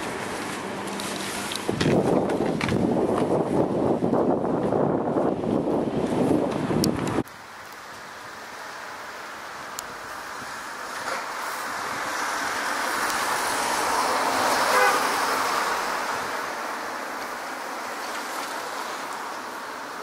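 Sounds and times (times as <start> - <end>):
vehicle passing by: 8.5 - 19.8.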